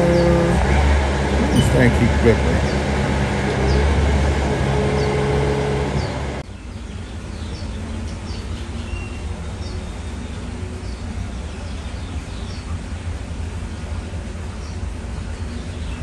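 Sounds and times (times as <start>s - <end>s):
loud mechanical rumble: 0.0s - 16.0s
outdoor ambience: 0.0s - 16.0s
small birds chirping: 6.0s - 16.0s.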